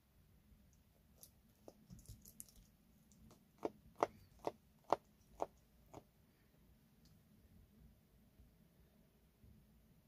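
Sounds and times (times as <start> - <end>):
beak crunching and snapping: 1.2 - 6.0.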